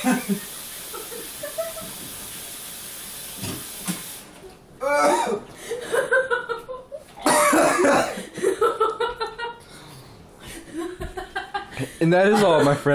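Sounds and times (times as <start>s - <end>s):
tap running into sink: 3.3s - 4.2s
person coughing and hacking: 4.8s - 5.5s, 7.2s - 8.3s.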